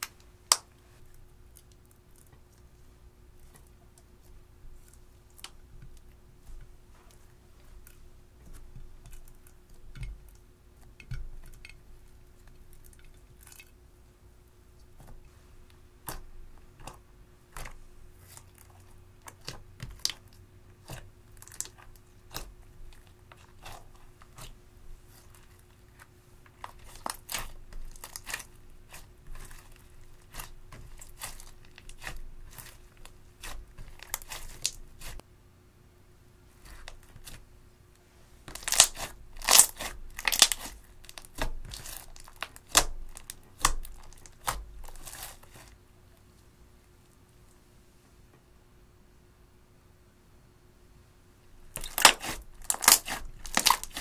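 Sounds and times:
slime crackling and popping: 18.2 - 35.2, 38.5 - 45.7, 51.7 - 54.0.

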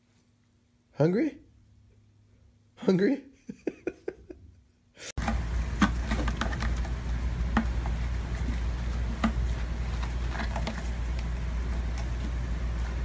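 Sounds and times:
paws and claws scratching: 5.3 - 13.0.

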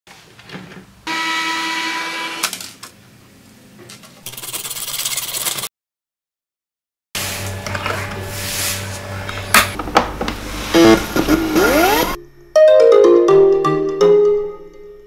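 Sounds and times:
mechanical whirring with whine: 9.1 - 12.6
coping saw cutting plastic: 10.5 - 12.2.

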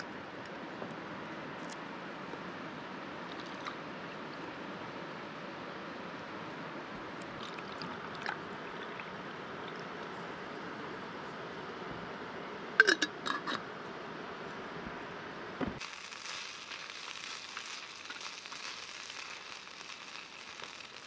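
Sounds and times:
glass bottle clinking: 12.8 - 13.6.

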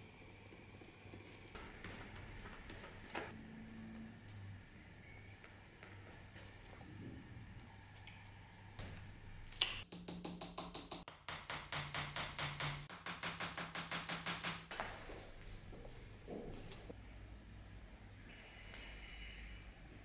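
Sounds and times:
small hammer tapping: 9.8 - 14.7.

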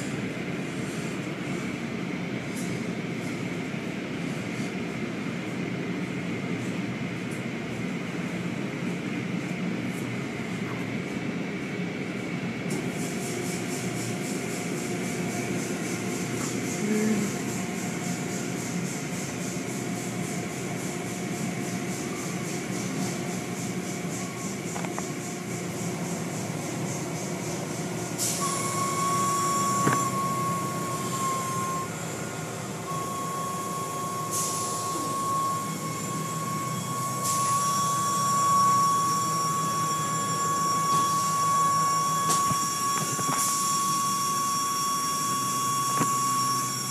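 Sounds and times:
car wash machinery running: 0.0 - 46.9
steady high whine: 0.0 - 46.9
fast rhythmic high-pitched noise: 12.9 - 46.9.

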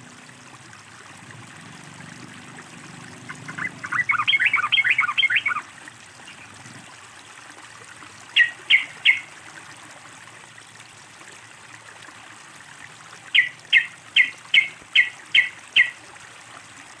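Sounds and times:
running water trickling: 0.0 - 17.0
bird calling: 3.3 - 5.7, 8.4 - 9.3, 13.3 - 16.0.

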